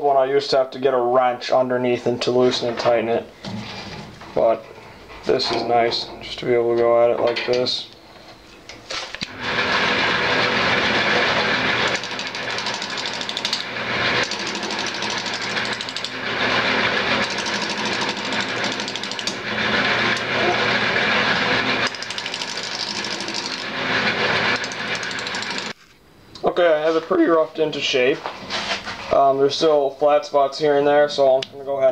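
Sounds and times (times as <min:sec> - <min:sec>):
gouge cutting wood: 0:09.3 - 0:25.8
lathe motor hum: 0:09.3 - 0:25.8.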